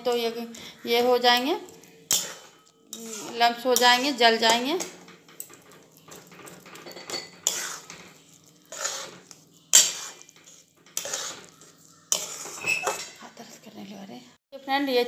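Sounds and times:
metal spoon scraping a pan: 0.0s - 14.0s.

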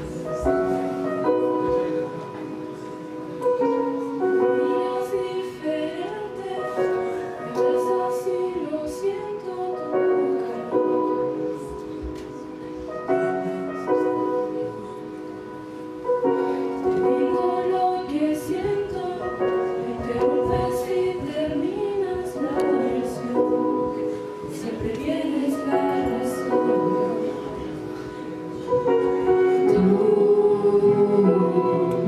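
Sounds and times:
group singing into microphones: 16.9s - 32.0s.

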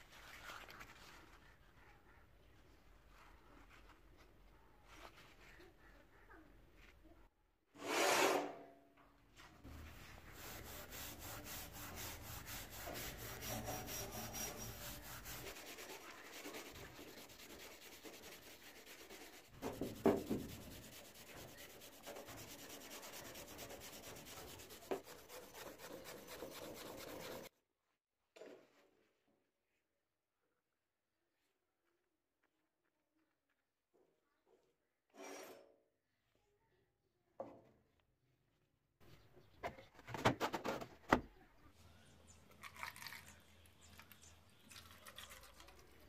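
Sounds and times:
wire brush scrubbing metal: 9.7s - 27.5s.

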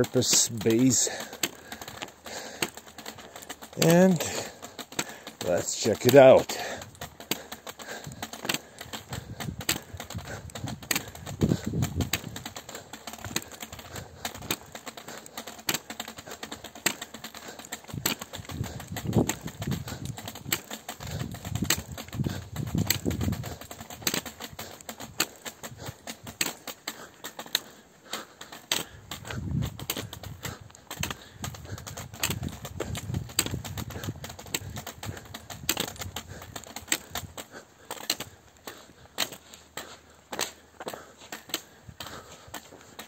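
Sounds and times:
footsteps on asphalt: 0.0s - 43.0s
wind buffeting microphone: 9.0s - 12.6s, 17.9s - 24.7s, 29.1s - 36.5s.

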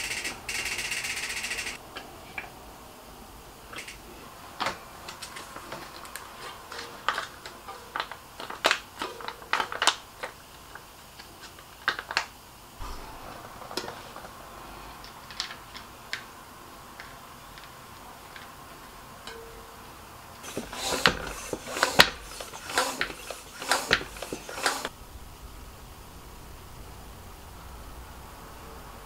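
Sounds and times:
hands clicking and tapping parts: 20.4s - 24.9s.

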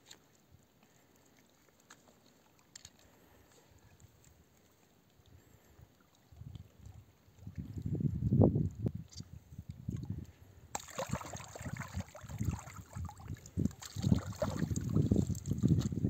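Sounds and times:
water trickling: 9.6s - 16.0s
hands splashing in water: 10.7s - 16.0s.

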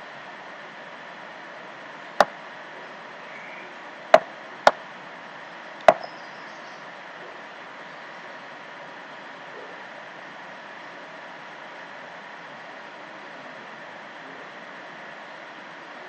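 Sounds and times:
steady background hiss: 0.0s - 16.0s.

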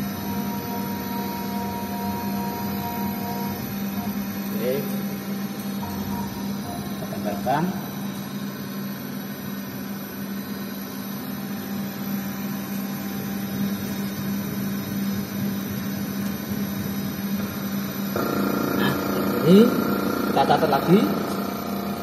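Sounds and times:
milling machine humming: 0.0s - 22.0s.

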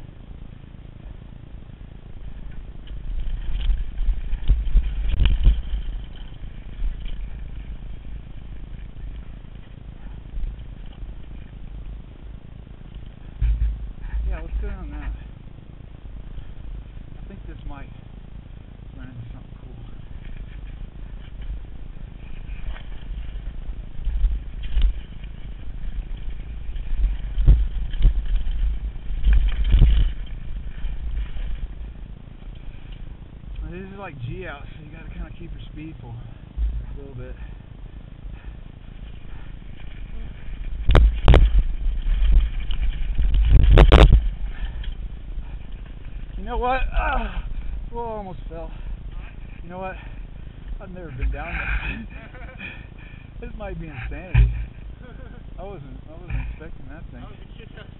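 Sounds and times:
mountain bike rattling on trail: 0.0s - 57.9s
tyres over dirt and rock: 0.0s - 57.9s
wind on microphone: 2.2s - 11.4s, 19.1s - 32.4s, 38.6s - 52.6s
bike knocking over bumps: 2.2s - 17.2s, 20.0s - 48.1s, 48.7s - 55.6s, 56.2s - 56.9s
bike clattering knocks: 12.9s - 15.2s, 54.0s - 55.0s, 56.2s - 56.7s.

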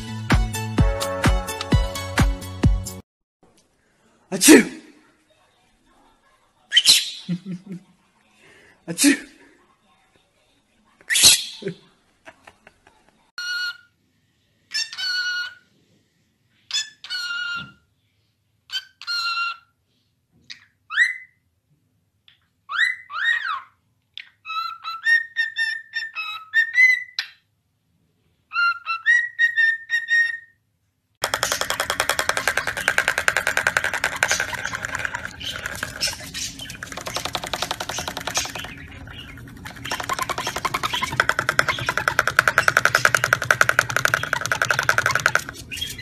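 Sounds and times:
loud music: 0.0s - 3.0s.

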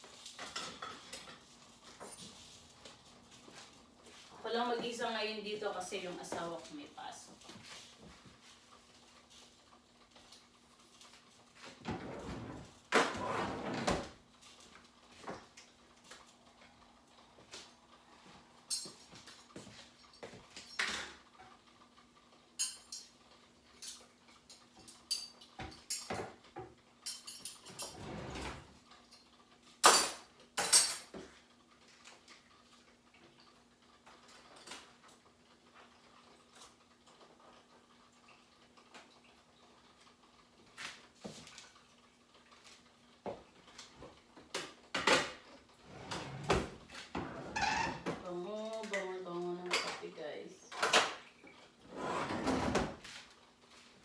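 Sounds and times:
dishes and utensils clinking: 0.3s - 2.5s, 22.6s - 23.2s, 23.8s - 26.4s, 27.0s - 28.5s, 29.8s - 31.3s.

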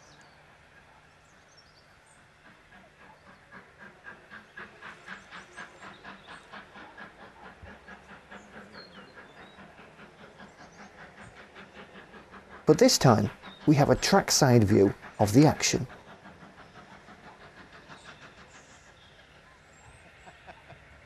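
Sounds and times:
steam locomotive exhaust beats: 0.0s - 21.0s.

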